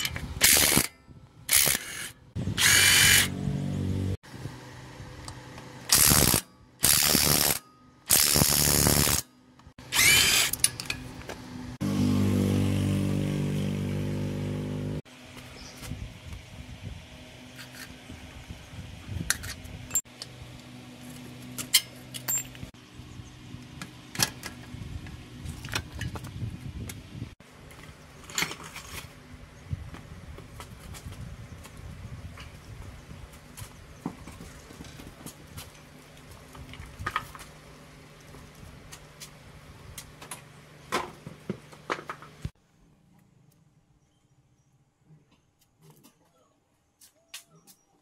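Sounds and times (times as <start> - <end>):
power tool bursts: 0.4 - 0.9, 1.5 - 3.4, 5.9 - 9.2, 9.8 - 10.6.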